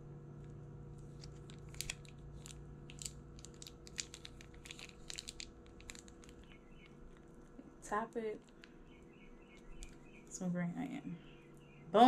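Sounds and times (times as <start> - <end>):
steady low hum: 0.0 - 12.0
plastic packet crinkling: 1.0 - 7.5.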